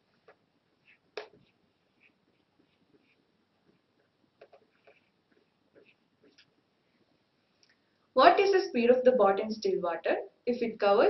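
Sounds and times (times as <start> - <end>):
marker strokes on whiteboard: 0.0 - 7.4.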